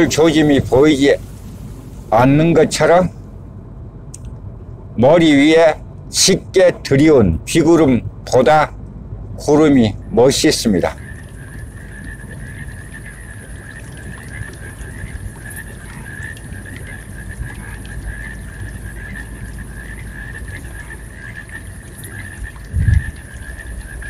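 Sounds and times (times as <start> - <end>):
tyre and engine rumble: 0.0 - 24.0
short low thump: 22.7 - 23.1.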